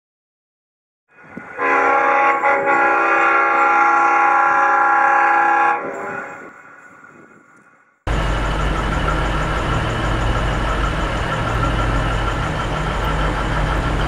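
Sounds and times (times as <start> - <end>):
locomotive air horn: 1.5 - 6.6.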